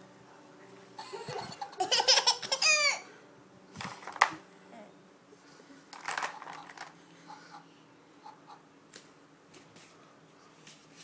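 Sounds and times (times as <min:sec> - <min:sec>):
baby giggling: 0:01.0 - 0:03.0.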